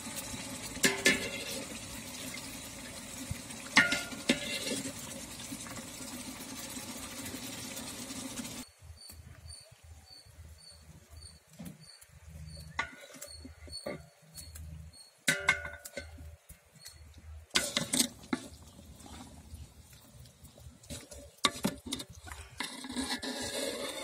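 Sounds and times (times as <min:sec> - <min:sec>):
ladle scraping a metal pot: 0:00.7 - 0:01.8, 0:03.7 - 0:05.8, 0:17.5 - 0:19.4, 0:20.8 - 0:24.0
faint high chirp: 0:08.6 - 0:15.2.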